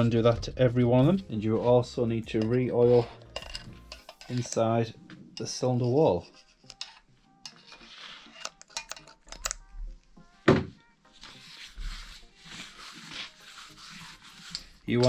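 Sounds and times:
metal clinks and taps: 8.5s - 9.6s
soft rubbing: 11.1s - 15.0s.

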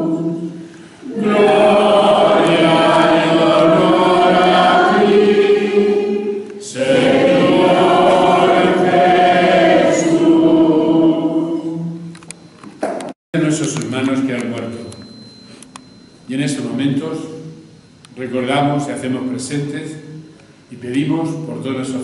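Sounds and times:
choir singing: 0.0s - 12.1s.

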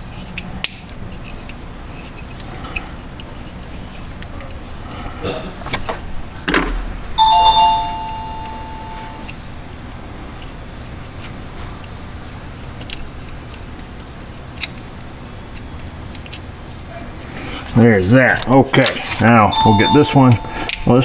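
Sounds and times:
two-pitched ringing chime: 7.2s - 9.3s, 19.5s - 21.0s.

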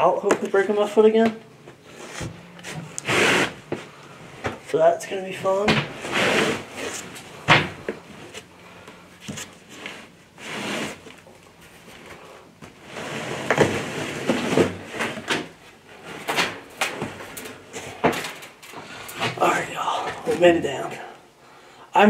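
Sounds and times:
knocks creaks and scuffs of climbing: 5.4s - 21.0s.

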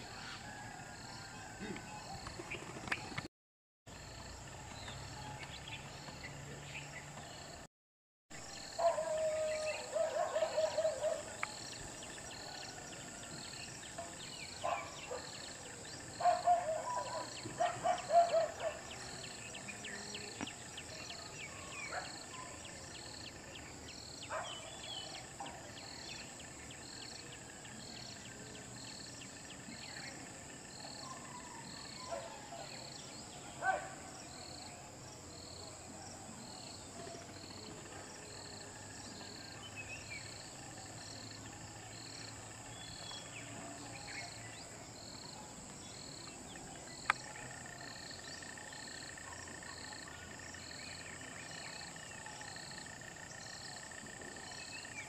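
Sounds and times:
regular insect chirp: 3.9s - 7.7s, 8.4s - 55.0s.

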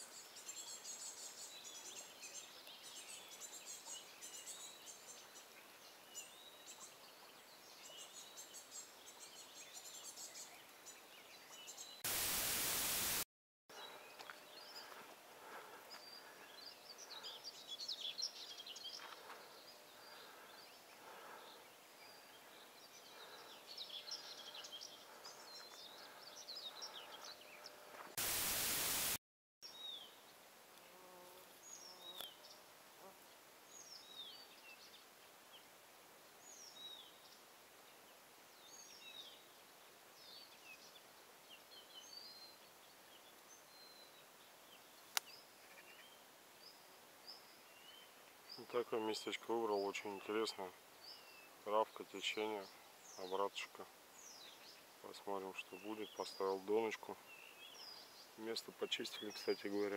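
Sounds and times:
birds chirping: 0.0s - 30.2s, 40.2s - 59.9s
burst of hiss: 12.0s - 13.2s, 28.1s - 29.2s.

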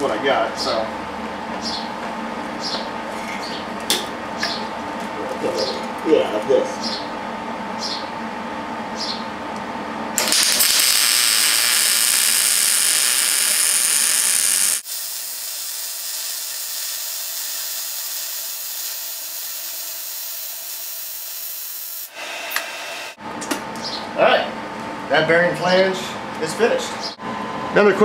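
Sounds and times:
welding arc hissing and crackling: 10.2s - 23.2s.

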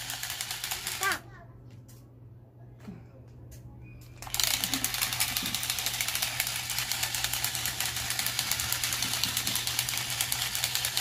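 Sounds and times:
toy robot motor clicking rattle: 0.0s - 1.2s, 4.2s - 11.0s.

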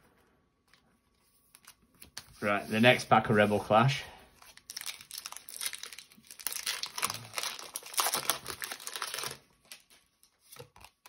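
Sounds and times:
faint wrapper rustles: 4.4s - 11.0s
foil wrapper tearing and crinkling: 4.4s - 11.0s.

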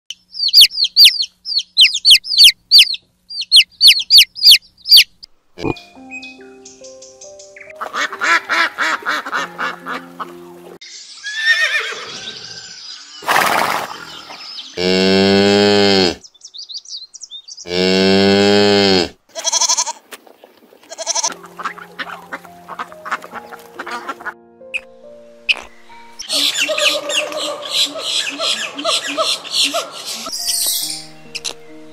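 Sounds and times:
background music: 5.6s - 10.8s, 21.0s - 28.5s, 29.6s - 31.9s
ducks quacking: 7.8s - 10.6s, 20.9s - 24.4s, 26.3s - 30.3s
cow mooing: 14.8s - 16.2s, 17.7s - 19.9s.

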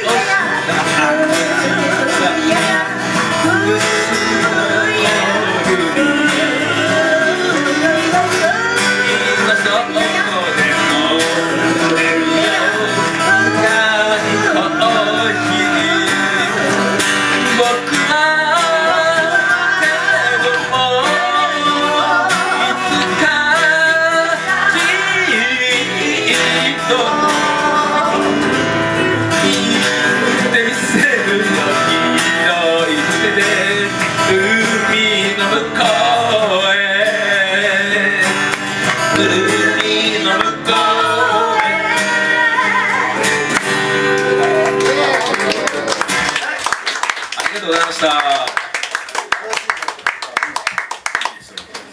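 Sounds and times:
man singing: 0.0s - 45.2s
guitars strummed and picked: 0.0s - 48.5s.

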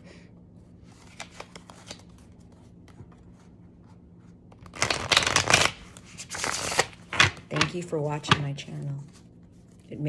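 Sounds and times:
cards riffle-shuffled: 0.9s - 2.6s, 4.5s - 7.8s.

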